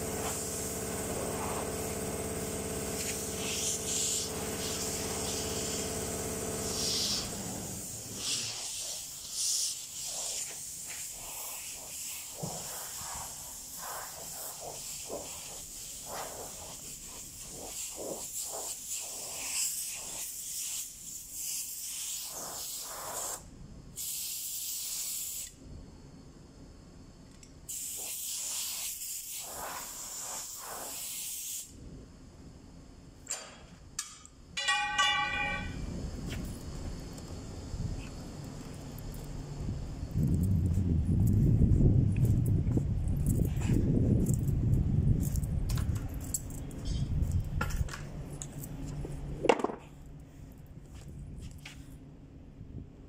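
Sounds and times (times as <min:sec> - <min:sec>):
compressed air blow gun hissing: 0:00.0 - 0:02.0, 0:02.9 - 0:06.0, 0:06.6 - 0:23.4, 0:24.0 - 0:25.6, 0:27.7 - 0:31.8.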